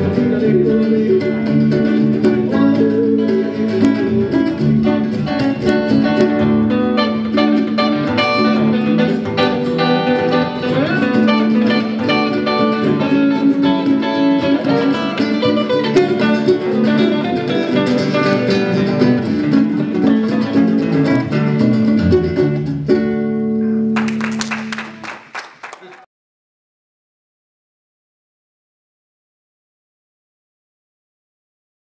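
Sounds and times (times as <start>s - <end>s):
electric guitar lead picking: 0.0s - 24.1s.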